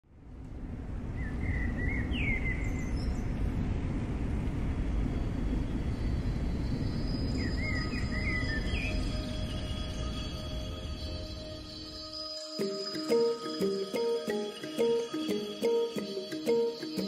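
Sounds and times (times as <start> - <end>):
bird chirping: 6.6 - 17.0.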